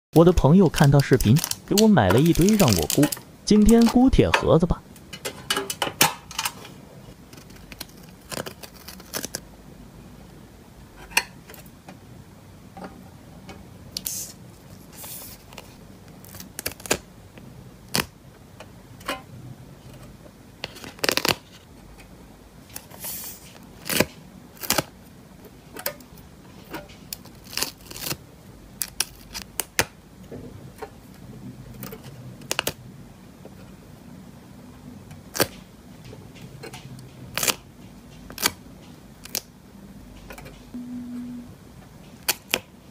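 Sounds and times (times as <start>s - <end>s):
stickers peeling: 0.2s - 4.7s.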